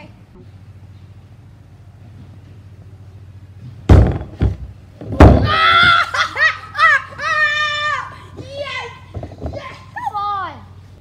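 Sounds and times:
plastic cart thunking and crashing: 3.9 - 5.6.

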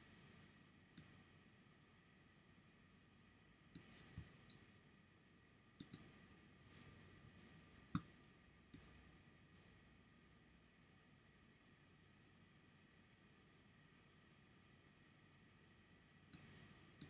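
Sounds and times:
computer mouse clicks: 3.7 - 4.3, 5.8 - 6.1, 16.3 - 17.0.

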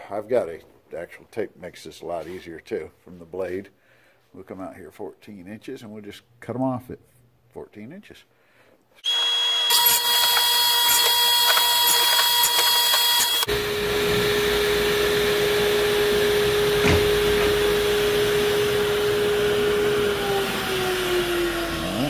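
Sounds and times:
radial arm saw cutting boards: 9.0 - 22.0.

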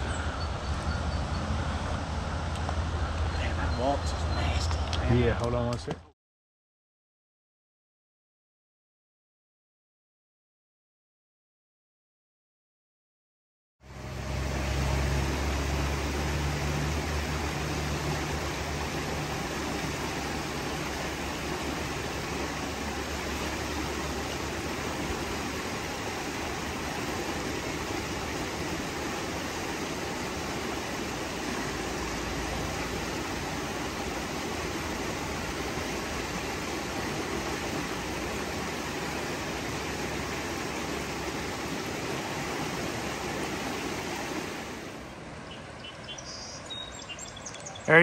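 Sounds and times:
creek water rushing: 13.8 - 48.0.

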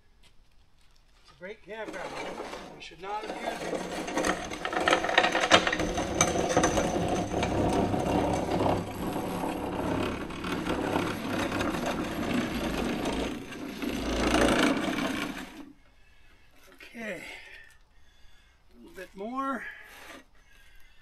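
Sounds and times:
table scraping across sand: 1.5 - 15.7.

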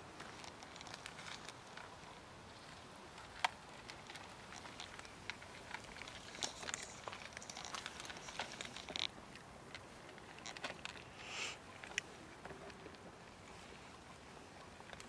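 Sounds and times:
cats crunching dry kibble: 0.0 - 13.8, 14.5 - 15.0.

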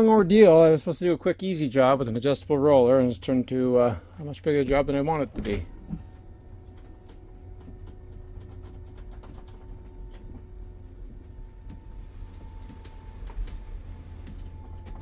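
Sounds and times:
slide-out motor humming: 3.8 - 15.0.

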